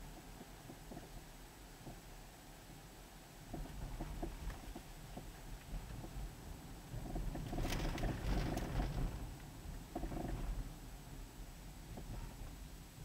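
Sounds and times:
knocks and rustles: 7.0s - 9.2s.

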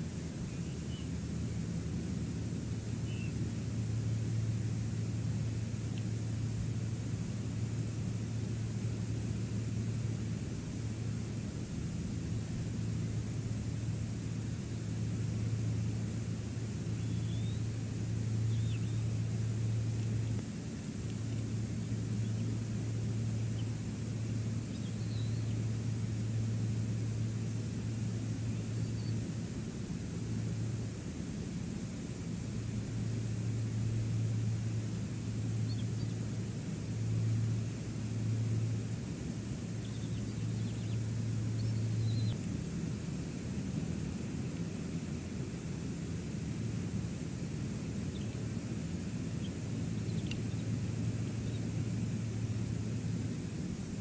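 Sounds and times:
constant low hum: 0.0s - 54.0s
wind: 0.0s - 54.0s
faint tick: 20.0s - 21.3s, 50.1s - 50.6s.

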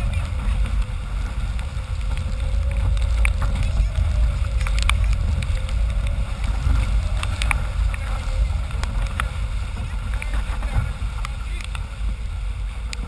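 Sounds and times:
water rushing along hull: 0.0s - 13.0s
wind buffeting microphone: 0.0s - 13.0s
water drops ticking on camera: 1.5s - 10.4s.

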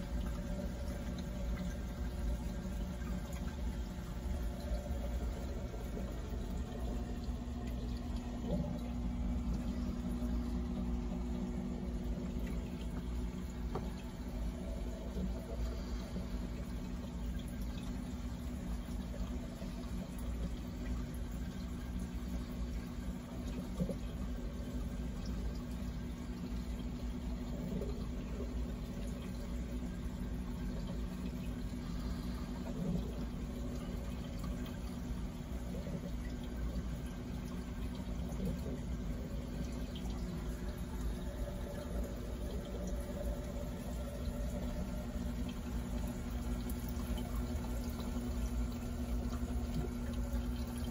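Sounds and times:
low steady hum: 0.0s - 50.9s
water flowing and trickling: 0.0s - 50.9s.

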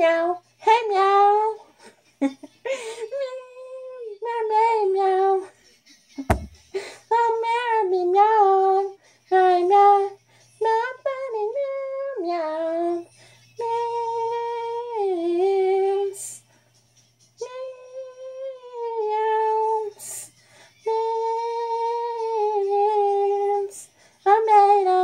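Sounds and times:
short bump: 6.2s - 6.6s
woman singing in meows: 17.4s - 20.0s, 20.9s - 23.7s.

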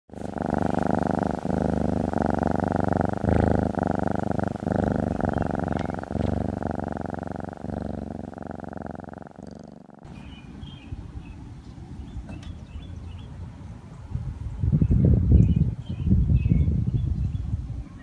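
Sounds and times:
cat purring: 0.1s - 10.8s.

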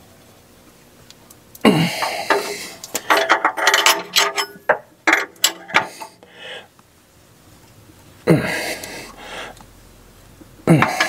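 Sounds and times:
wrench clicking and clinking: 2.3s - 6.2s.

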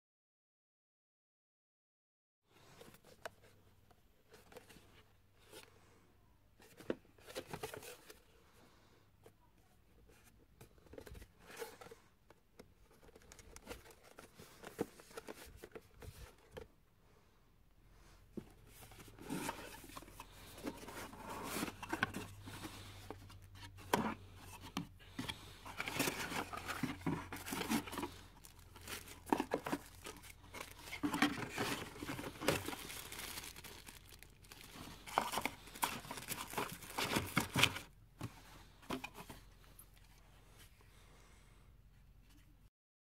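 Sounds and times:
plastic bag crinkling and tearing: 27.3s - 37.7s.

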